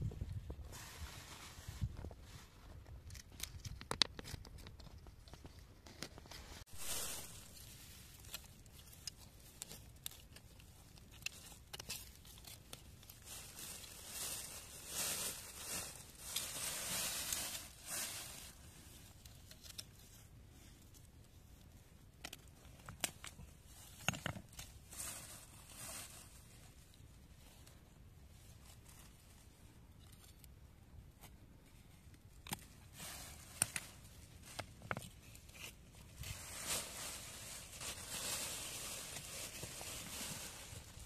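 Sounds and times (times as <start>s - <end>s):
leaves rustling: 0.6s - 3.5s, 6.3s - 20.2s, 23.3s - 27.7s, 32.4s - 41.0s
stems tearing: 6.9s - 14.8s.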